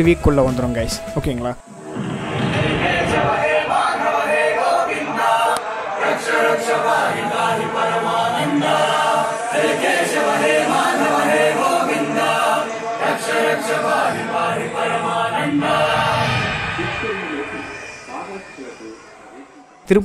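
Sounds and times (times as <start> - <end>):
background music: 0.0 - 1.7, 2.8 - 20.0
group of voices chanting: 2.6 - 19.8.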